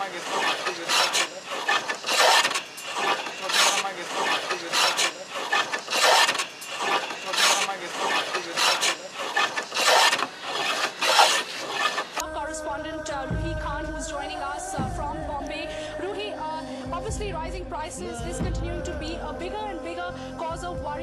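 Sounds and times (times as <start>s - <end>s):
hand tool rasping wood: 0.0s - 12.2s.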